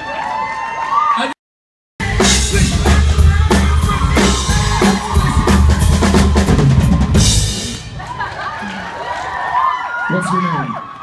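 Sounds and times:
heavy bass line: 0:02.0 - 0:08.0
live rock band playing: 0:02.0 - 0:08.1
drum kit beat: 0:02.0 - 0:08.2.

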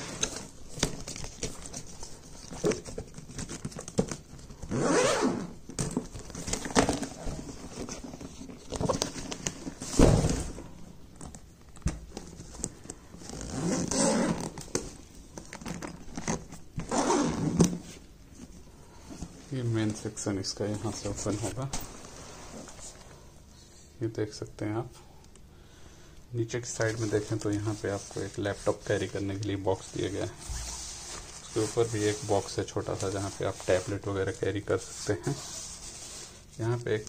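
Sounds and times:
zipper rasping open: 0:04.7 - 0:05.5, 0:13.2 - 0:14.6, 0:16.2 - 0:17.7
fabric rustle: 0:26.8 - 0:37.0.

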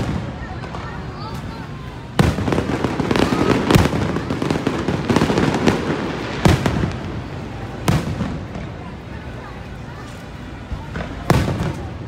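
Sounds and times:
continuous rumble: 0:00.0 - 0:12.0
firework shells booming: 0:02.2 - 0:08.8
light firework pops: 0:10.8 - 0:12.0.

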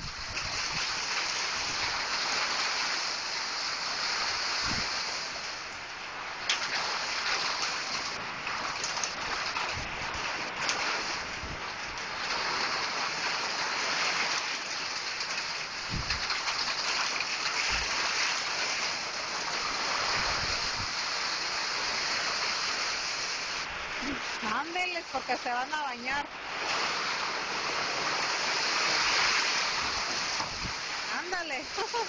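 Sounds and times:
rain falling: 0:00.0 - 0:32.0.

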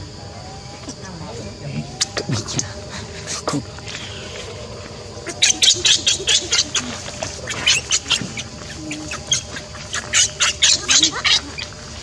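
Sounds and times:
baby monkey squealing: 0:05.2 - 0:12.0.

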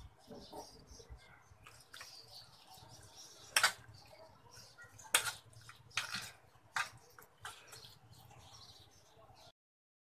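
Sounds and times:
metal spoon clinking on plate: 0:05.1 - 0:05.4.

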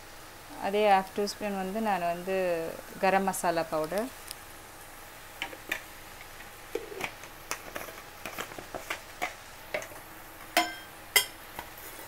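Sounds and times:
food crackling and popping in pan: 0:02.8 - 0:12.0.

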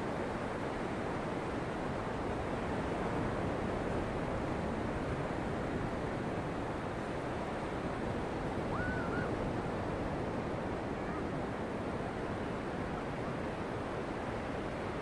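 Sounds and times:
faint short whistle: 0:08.7 - 0:09.3.

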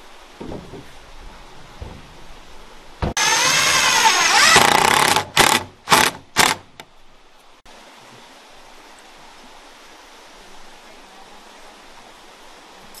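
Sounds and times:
electric power tool running: 0:03.2 - 0:06.6.

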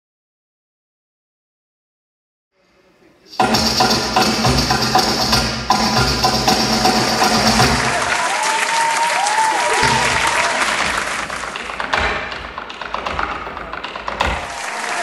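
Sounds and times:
audience applauding: 0:06.8 - 0:12.7, 0:13.6 - 0:15.0
audience cheering: 0:06.9 - 0:12.0, 0:14.3 - 0:15.0.

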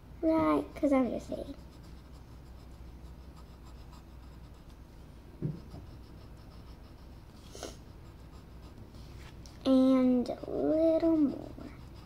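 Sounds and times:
pencil scratching on paper: 0:00.8 - 0:04.9, 0:05.5 - 0:12.0
low thump: 0:05.4 - 0:05.9.

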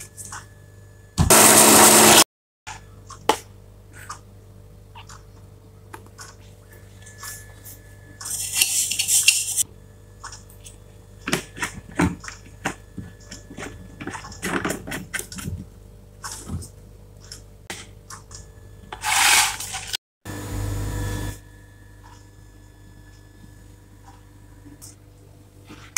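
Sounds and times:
spoon scraping plastic tub: 0:08.2 - 0:09.6, 0:18.9 - 0:20.0.

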